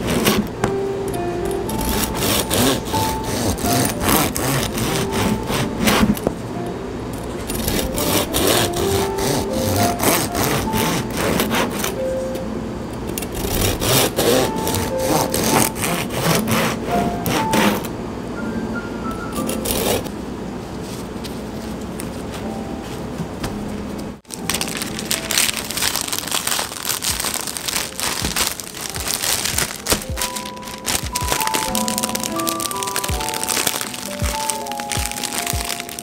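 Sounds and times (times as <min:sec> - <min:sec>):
bread knife sawing through loaf: 0:01.9 - 0:06.1, 0:07.6 - 0:11.9, 0:13.4 - 0:17.8.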